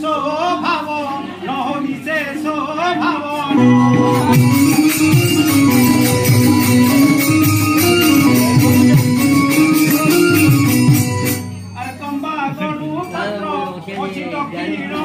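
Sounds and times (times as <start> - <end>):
folk theatre music: 0.0 - 13.4
drums: 3.5 - 11.8
fast jingling percussion: 4.0 - 13.3.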